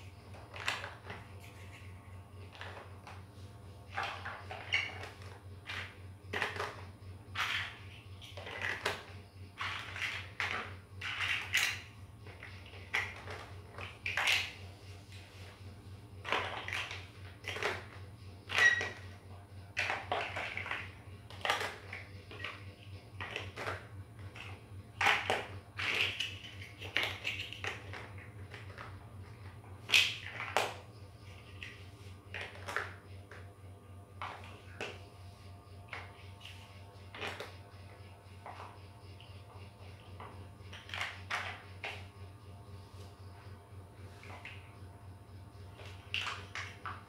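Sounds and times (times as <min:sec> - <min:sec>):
low steady hum: 0:00.0 - 0:47.0
plastic bricks clicking: 0:03.9 - 0:14.6, 0:16.2 - 0:19.2, 0:19.8 - 0:29.0, 0:29.9 - 0:33.4.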